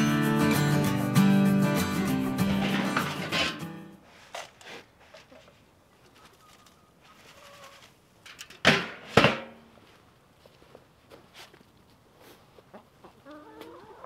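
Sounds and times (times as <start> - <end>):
plastic scoop scraping feed: 2.4 - 5.6
metal lid clank: 2.5 - 3.6.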